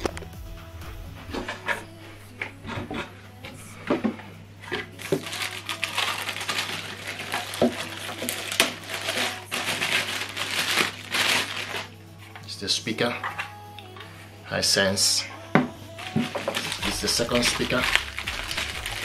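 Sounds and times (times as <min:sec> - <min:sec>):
plastic bag crinkling: 0:04.6 - 0:12.5, 0:15.9 - 0:19.0.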